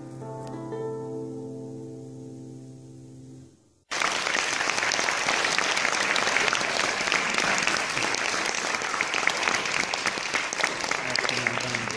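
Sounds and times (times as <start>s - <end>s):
audience applause: 3.9s - 11.9s.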